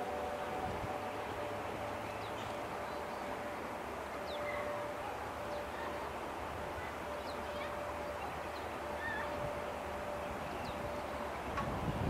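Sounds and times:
steady rushing hiss: 0:00.0 - 0:12.0.

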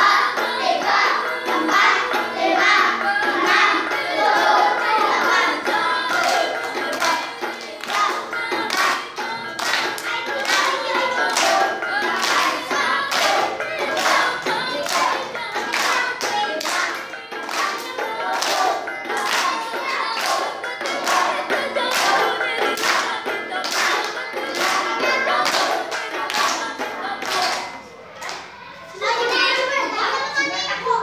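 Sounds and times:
children singing in unison: 0:00.0 - 0:27.9
hand claps in unison: 0:06.1 - 0:11.6, 0:12.2 - 0:13.4, 0:14.9 - 0:21.3, 0:21.9 - 0:24.8.

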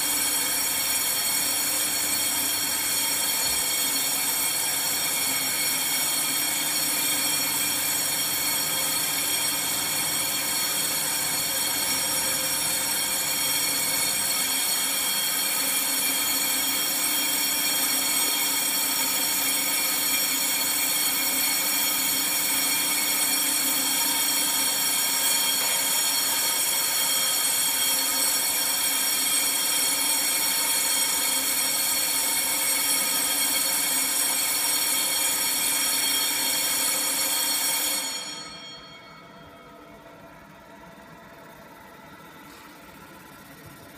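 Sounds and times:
high-pitched machine whine: 0:00.0 - 0:43.9.

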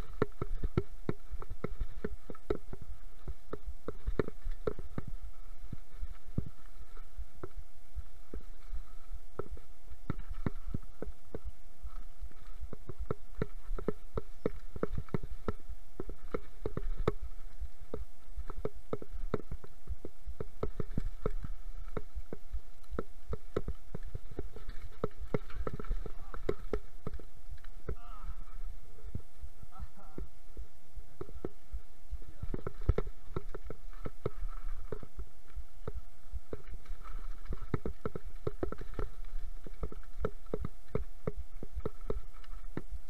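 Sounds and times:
faint steady tone: 0:00.0 - 0:43.0
mountain bike rattling: 0:23.0 - 0:27.7.

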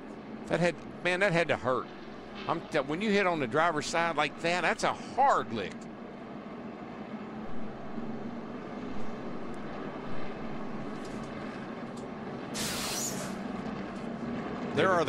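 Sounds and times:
race car engines droning: 0:00.0 - 0:15.0
burst of hiss: 0:12.5 - 0:13.4.

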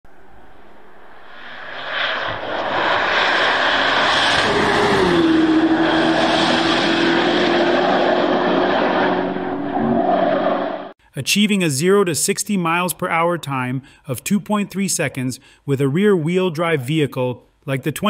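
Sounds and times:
car engine running hard: 0:03.5 - 0:10.9.

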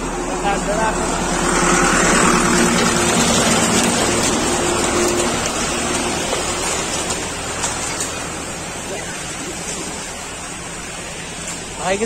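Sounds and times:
flowing water rushing: 0:00.0 - 0:12.0.

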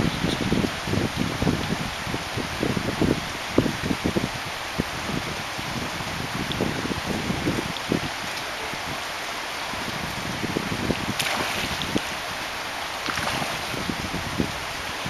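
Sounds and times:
flowing river water: 0:00.0 - 0:15.0
fish splashing at surface: 0:11.2 - 0:12.0, 0:13.0 - 0:13.7.

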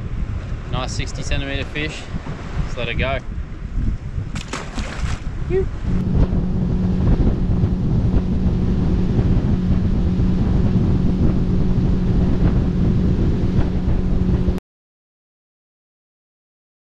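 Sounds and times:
wind buffeting on microphone: 0:00.0 - 0:14.6
outboard motor running: 0:04.3 - 0:14.6.

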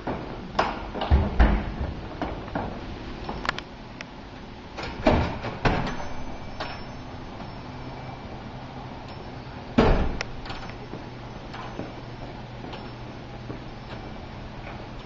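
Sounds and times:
door closing thump: 0:09.8 - 0:10.6.

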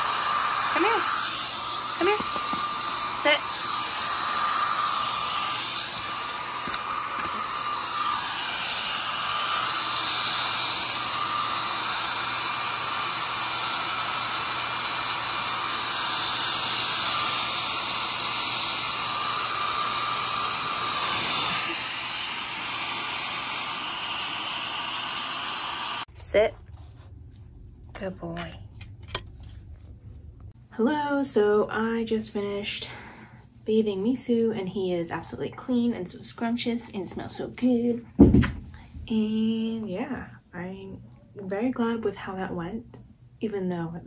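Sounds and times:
hair dryer blowing: 0:00.0 - 0:26.1.

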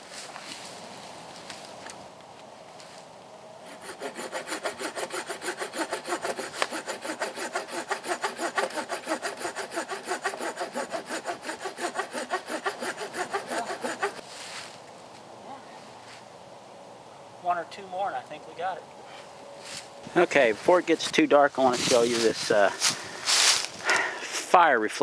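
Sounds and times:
hand saw cutting log: 0:03.6 - 0:14.2.

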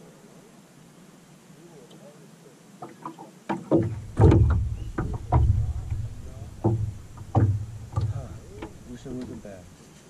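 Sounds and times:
water slapping against boat hull: 0:02.8 - 0:09.5
low rumble: 0:04.0 - 0:09.0.

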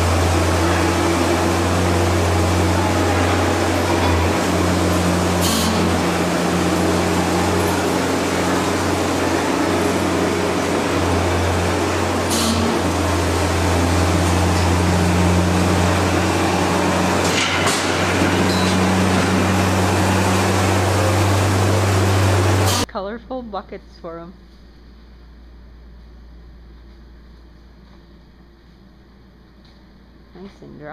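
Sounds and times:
straw blower mechanical drone: 0:00.0 - 0:22.9.

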